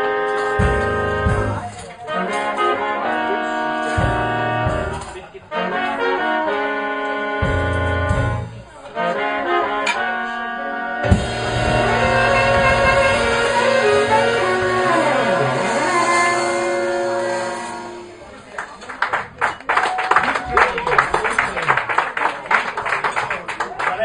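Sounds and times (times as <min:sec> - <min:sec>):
trumpet long held notes: 0:00.0 - 0:19.1
live jazz band: 0:00.0 - 0:23.6.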